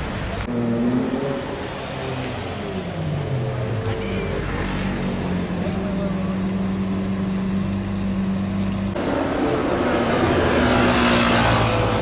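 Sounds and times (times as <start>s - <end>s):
car engine droning at low speed: 0.4s - 12.0s.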